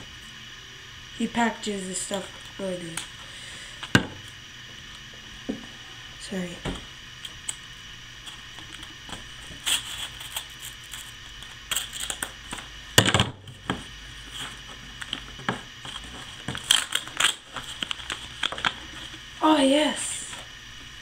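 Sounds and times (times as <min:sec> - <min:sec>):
paper rustling: 0:15.8 - 0:19.2
scissors snipping through package: 0:15.9 - 0:18.8.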